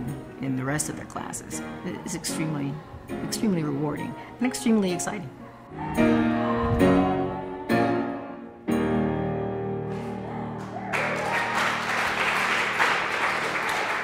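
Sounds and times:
piano chords: 0:00.0 - 0:14.0
small group applauding: 0:10.0 - 0:14.0.

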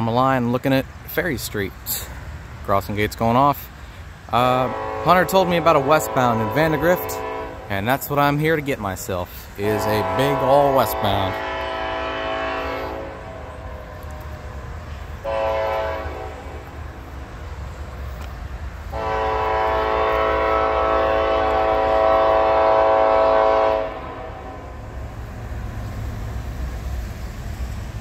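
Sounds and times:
locomotive air horn: 0:04.4 - 0:07.7, 0:09.6 - 0:14.5, 0:15.2 - 0:16.8, 0:18.9 - 0:24.9.

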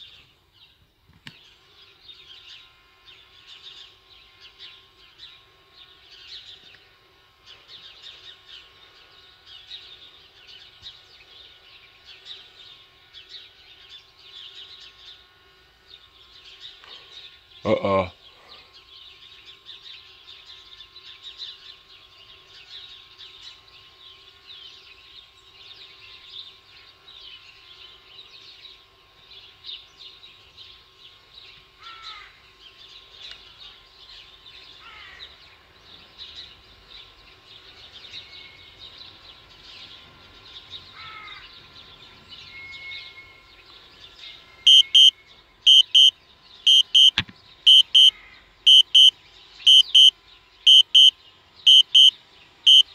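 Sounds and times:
small birds chirping: 0:00.0 - 0:52.9
app warning alert beeps: 0:44.7 - 0:45.1, 0:45.7 - 0:46.1, 0:46.7 - 0:48.1, 0:48.7 - 0:49.1, 0:49.7 - 0:50.1, 0:50.7 - 0:51.1, 0:51.7 - 0:52.1.

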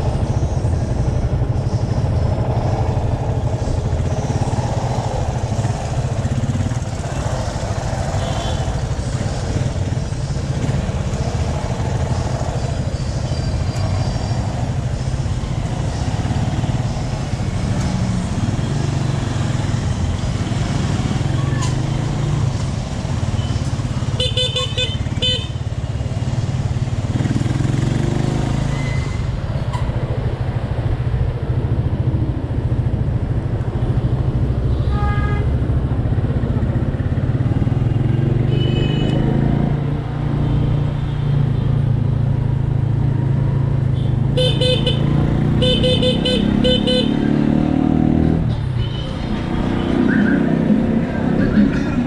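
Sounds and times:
vehicle horn beeps: 0:38.5 - 0:39.3
motorcycle engine accelerating: 0:44.7 - 0:48.5.

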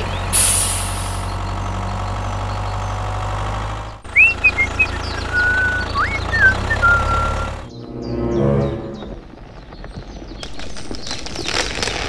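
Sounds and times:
engine: 0:00.0 - 0:07.7
tractor engine humming: 0:00.0 - 0:09.6
rising whistle-like tones: 0:04.1 - 0:09.2.

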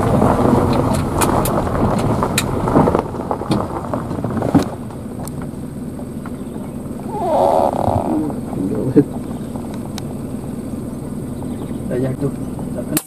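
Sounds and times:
car engine running: 0:00.0 - 0:13.0.

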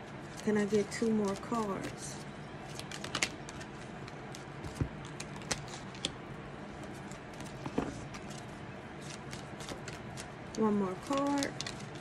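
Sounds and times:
steady low hum: 0:00.0 - 0:12.0
cards tapping and snapping: 0:02.7 - 0:06.2.

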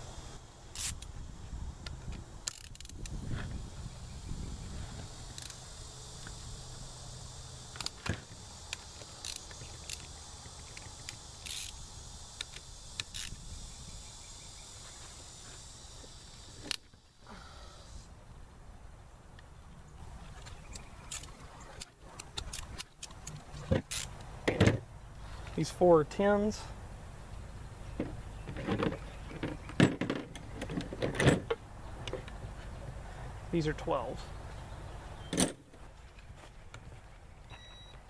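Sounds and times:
ratchet clicking: 0:00.7 - 0:01.1, 0:01.8 - 0:03.2, 0:05.2 - 0:06.4, 0:07.5 - 0:13.6, 0:22.2 - 0:24.3.

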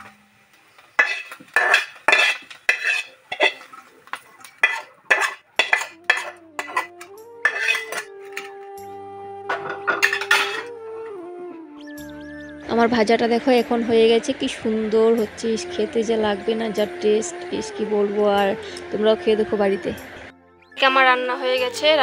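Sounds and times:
metal utensils clattering on a pan: 0:00.9 - 0:08.6, 0:09.5 - 0:10.7.

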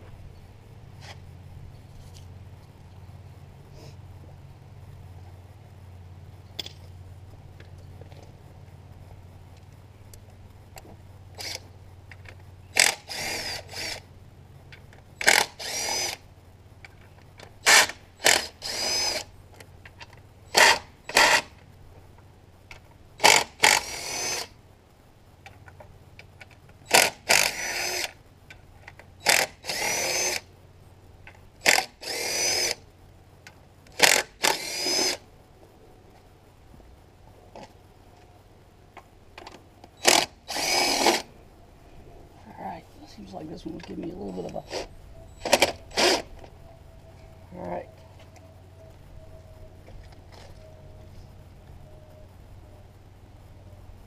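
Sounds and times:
cordless impact driver whining: 0:15.2 - 0:16.2, 0:17.6 - 0:19.3, 0:26.9 - 0:28.2, 0:29.2 - 0:30.4, 0:31.7 - 0:32.8, 0:40.0 - 0:41.3, 0:44.6 - 0:46.3.

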